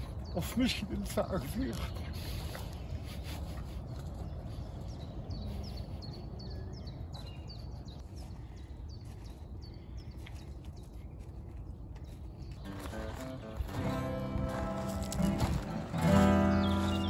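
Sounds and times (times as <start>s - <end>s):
small songbirds chirping: 0.0s - 17.0s
low outdoor rumble: 11.6s - 17.0s.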